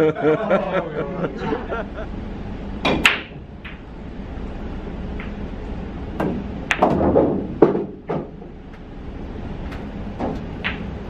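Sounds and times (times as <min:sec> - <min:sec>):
pool balls clacking: 0:02.8 - 0:03.9, 0:05.1 - 0:08.9, 0:09.6 - 0:11.0.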